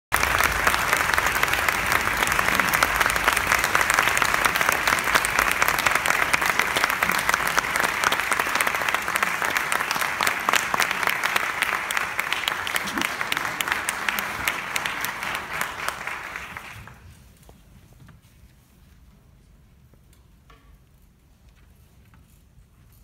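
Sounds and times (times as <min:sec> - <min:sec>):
audience applauding: 0:00.1 - 0:17.0.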